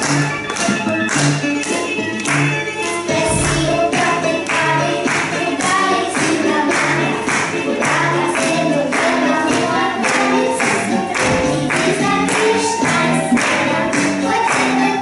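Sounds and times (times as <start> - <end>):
music with a steady beat: 0.0 - 15.0
girls singing in unison: 3.0 - 15.0.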